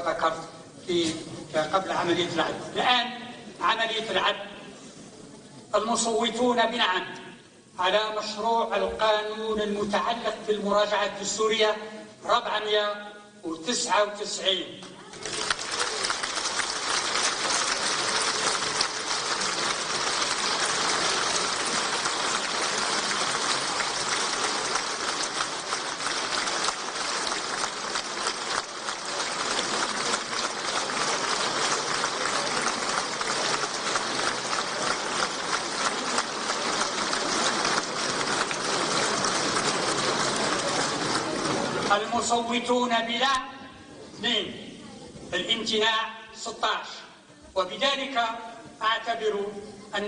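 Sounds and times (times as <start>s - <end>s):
crowd applause: 15.0s - 42.0s.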